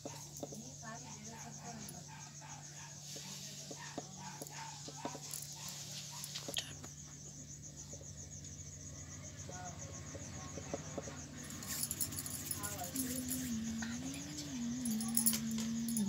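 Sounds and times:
insect chirping: 0.0 - 16.0
steady low hum: 4.2 - 16.0.

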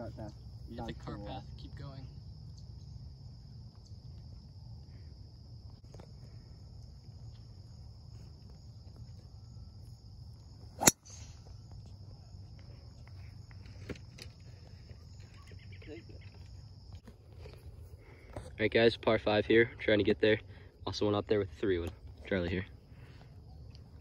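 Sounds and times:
golf club striking ball: 10.8 - 11.4.

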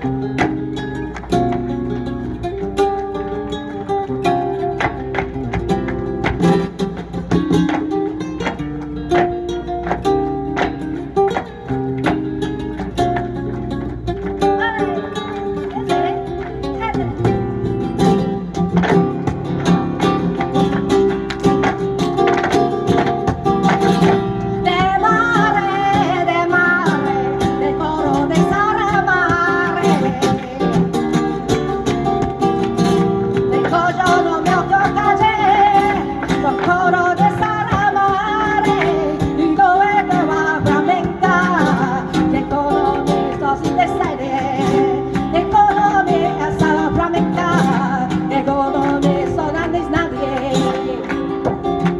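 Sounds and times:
acoustic guitar playing: 0.0 - 51.9
person singing flamenco: 0.0 - 51.9.

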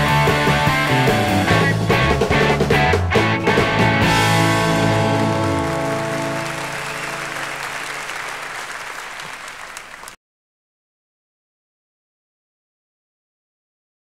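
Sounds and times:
electric guitars and bass chord: 0.0 - 7.7
audience applause: 4.4 - 10.2.

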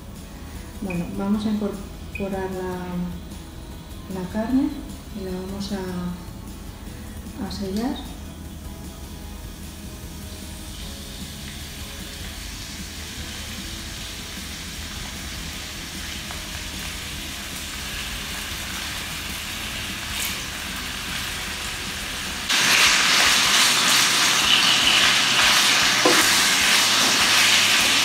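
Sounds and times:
beef sizzling in frying pan: 8.4 - 28.0.

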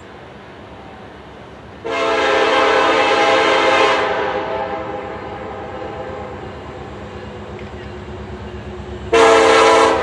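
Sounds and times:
locomotive air horn blast: 1.8 - 6.4, 9.1 - 10.0.

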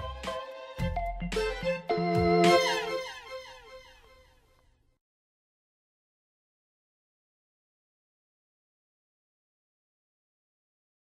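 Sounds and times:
keyboard chords: 0.0 - 4.0.

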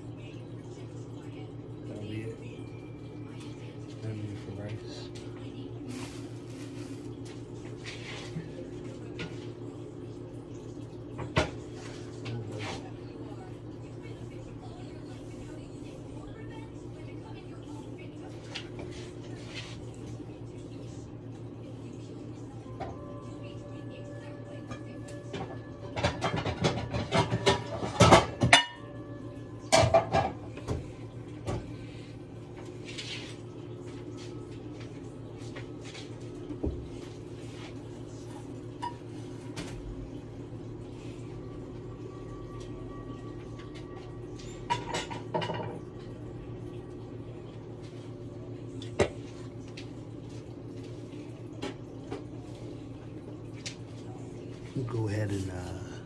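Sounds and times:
low hum with faint hiss: 0.0 - 56.0
cookware and utensils clattering: 24.5 - 30.9, 38.7 - 39.8, 44.3 - 46.0.

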